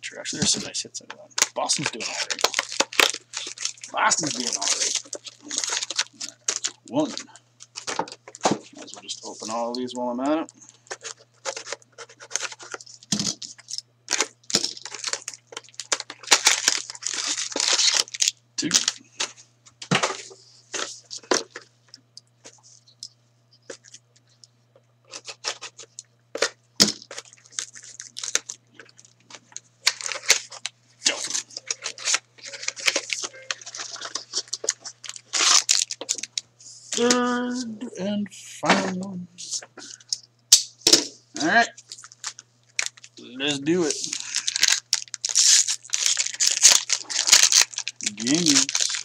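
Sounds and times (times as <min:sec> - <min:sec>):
plastic shrink wrap crinkling: 0:01.4 - 0:19.4, 0:25.0 - 0:37.7, 0:41.7 - 0:49.0.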